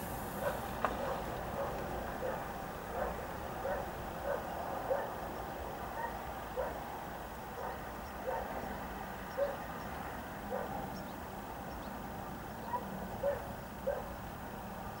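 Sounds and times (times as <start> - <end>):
faint dog barking: 0.4 - 5.2, 5.9 - 6.9, 7.6 - 8.6, 9.3 - 9.7, 10.5 - 10.9, 12.6 - 14.2.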